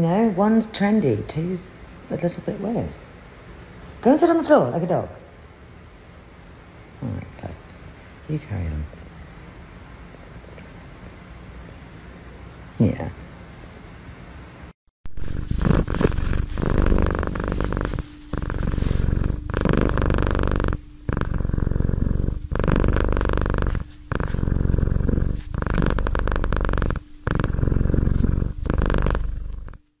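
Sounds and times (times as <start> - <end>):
cat purring loudly: 15.2 - 29.9.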